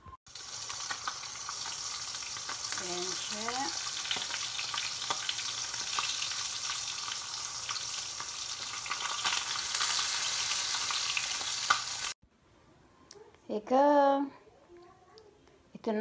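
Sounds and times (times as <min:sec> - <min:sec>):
meat sizzling in a pan: 0:00.3 - 0:12.2.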